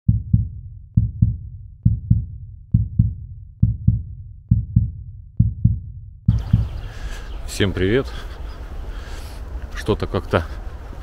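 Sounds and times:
heartbeat thumps: 0.0s - 7.1s.

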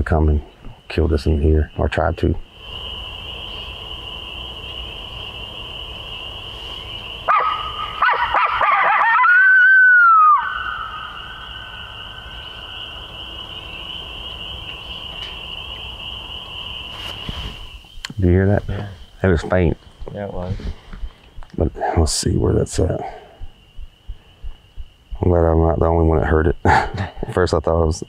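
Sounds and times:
coyote call howl: 7.2s - 16.3s
coyote call yips: 7.3s - 11.8s.

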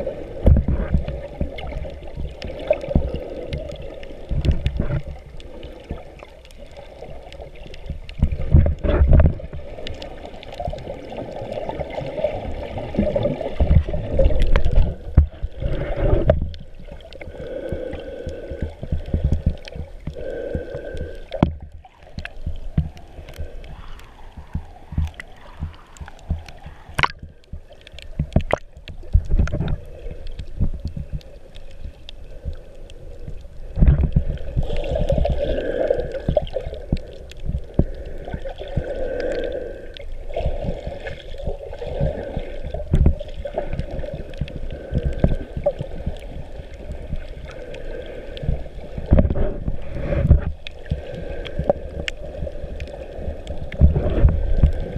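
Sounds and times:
underwater gurgling and sloshing: 0.0s - 54.9s
low underwater thumps and knocks: 0.4s - 2.3s, 8.2s - 9.4s, 24.4s - 29.8s, 49.1s - 50.6s.

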